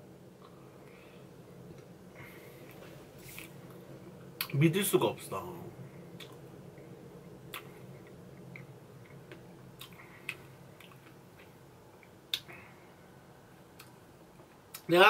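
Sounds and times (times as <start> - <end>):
mouth clicks and smacks eating: 7.5 - 12.5.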